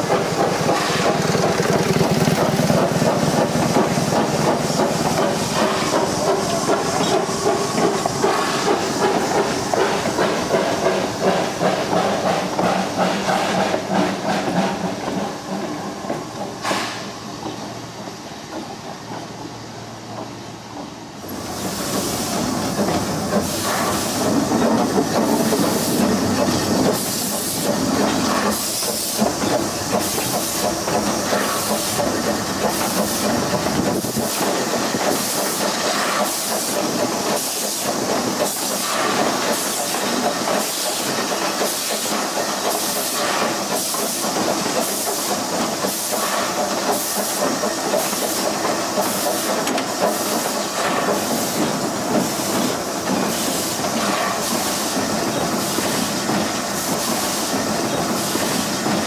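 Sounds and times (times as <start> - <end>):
steam hiss: 0.0 - 59.0
steam locomotive exhaust chuffs: 0.0 - 59.0.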